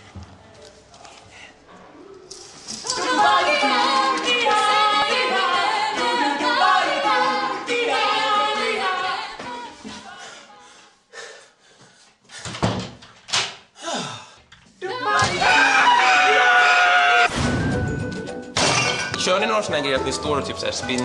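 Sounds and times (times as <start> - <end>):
group singing a cappella: 2.6 - 11.0, 14.8 - 16.0.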